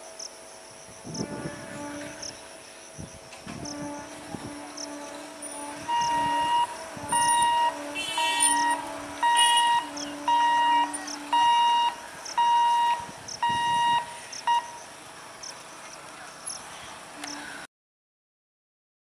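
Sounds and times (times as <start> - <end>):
low pulsing tone: 1.1 - 14.8
electronic alarm beeping: 5.9 - 14.9.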